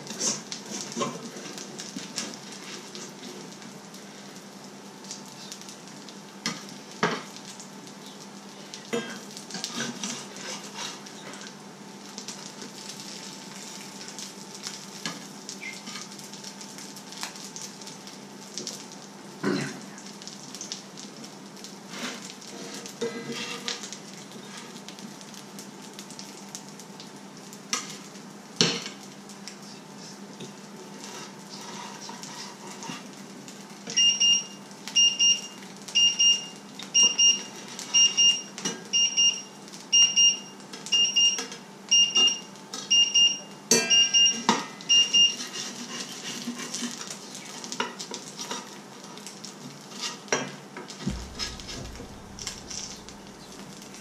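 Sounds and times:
food sizzling in a frying pan: 0:00.0 - 0:54.0
utensils clinking and scraping pan: 0:45.2 - 0:47.1
electronic beeper beeping: 0:51.1 - 0:53.8.

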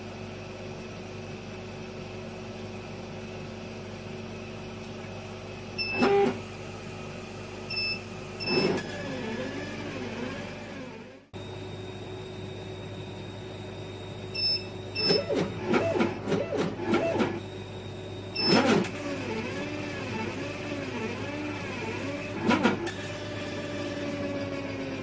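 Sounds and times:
steady machine hum: 0:00.0 - 0:25.0
gantry motors whining: 0:05.8 - 0:06.5, 0:07.7 - 0:11.4, 0:14.4 - 0:17.5, 0:18.3 - 0:25.0.

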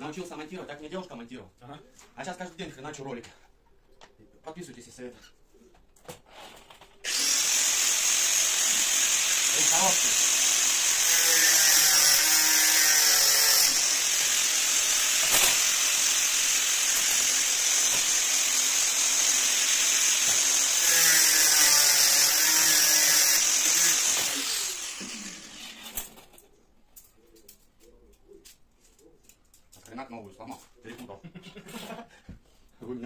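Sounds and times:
power tool cutting steel: 0:07.0 - 0:26.2.

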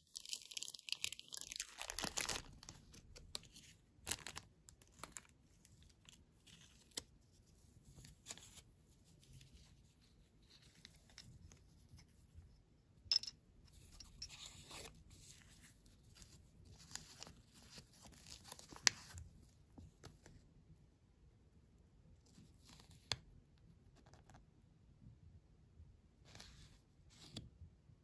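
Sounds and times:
paper rustling and crinkling: 0:00.2 - 0:11.6, 0:14.3 - 0:19.3.

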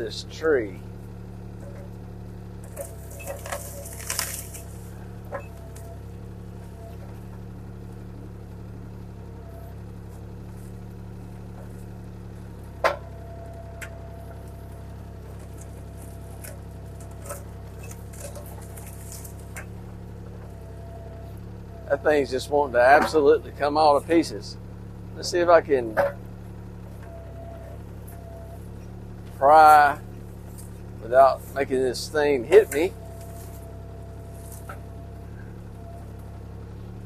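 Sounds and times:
excavator diesel engine running: 0:00.0 - 0:37.0
wood cracking and knocking: 0:02.6 - 0:05.9.

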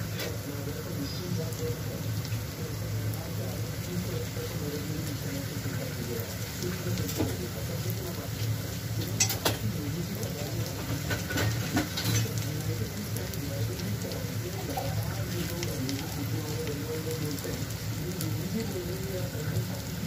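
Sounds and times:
vegetables sizzling in oil: 0:00.0 - 0:20.0.

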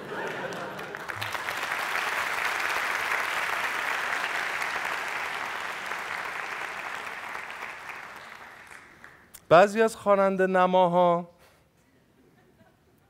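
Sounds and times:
studio audience applauding: 0:00.0 - 0:09.3.

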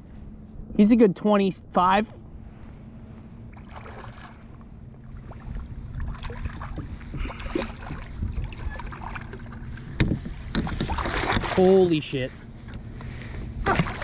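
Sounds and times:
low rumble: 0:00.0 - 0:14.0
fish splashing in water: 0:03.6 - 0:04.5, 0:05.1 - 0:09.7, 0:13.7 - 0:14.0.

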